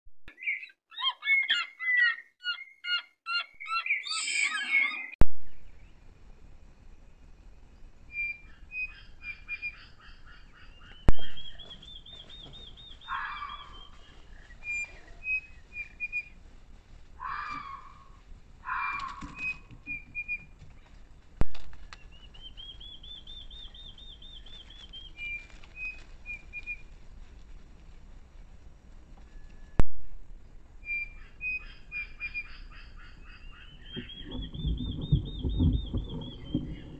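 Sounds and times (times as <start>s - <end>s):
trilled bird call: 0.3s - 5.2s, 8.1s - 16.3s, 17.2s - 20.5s, 30.8s - 36.9s
harsh bird calls: 0.3s - 6.0s, 8.1s - 16.3s, 17.2s - 20.5s, 30.8s - 36.9s.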